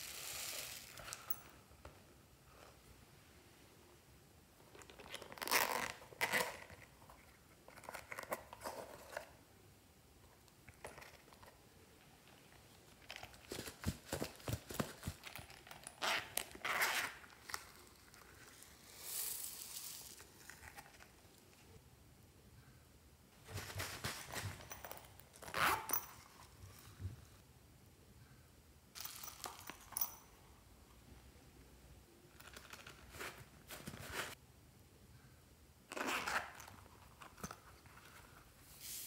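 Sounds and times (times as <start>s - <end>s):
foam beads pattering: 0.0s - 1.2s, 17.5s - 20.9s
plastic crinkling and rustling: 12.9s - 21.6s, 23.4s - 24.9s.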